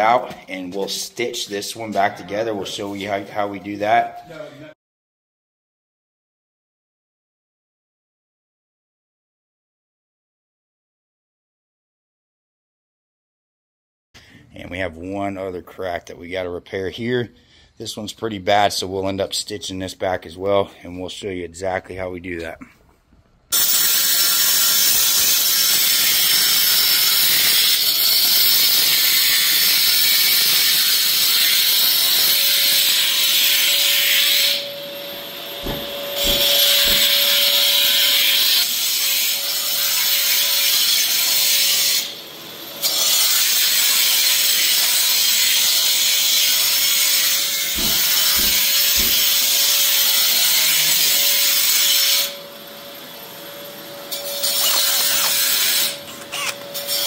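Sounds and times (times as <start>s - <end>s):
angle grinder cutting concrete: 23.6s - 34.9s, 35.6s - 52.3s, 54.2s - 57.0s.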